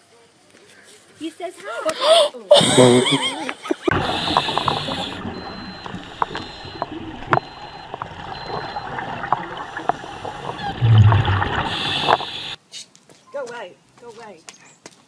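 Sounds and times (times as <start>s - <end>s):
exhaled air bubbling rush: 3.9s - 12.6s
regulator bubbly gurgle: 3.9s - 12.6s
inhaled breath hiss: 11.5s - 12.6s.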